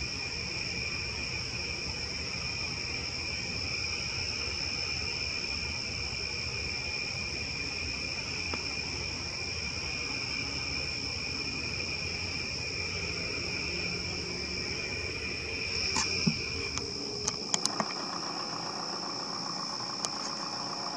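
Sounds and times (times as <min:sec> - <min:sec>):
night insects chorus: 0:00.0 - 0:20.9
sharp clicks: 0:15.8 - 0:18.6.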